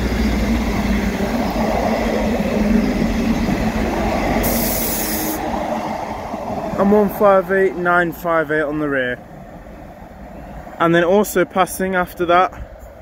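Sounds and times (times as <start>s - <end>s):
high hiss: 0.0s - 5.6s
diesel train passing: 0.0s - 13.0s.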